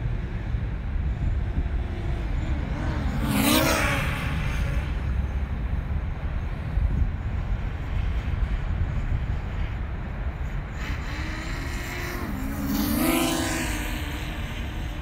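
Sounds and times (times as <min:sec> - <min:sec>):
drone propeller whine: 0:04.0 - 0:15.0.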